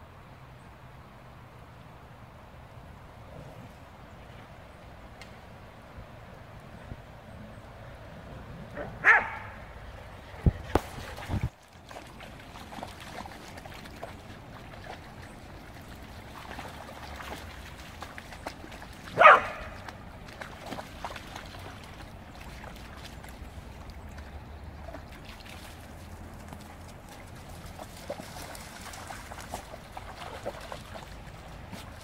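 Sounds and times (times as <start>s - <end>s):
dog barking: 8.8s - 9.6s, 19.2s - 19.8s.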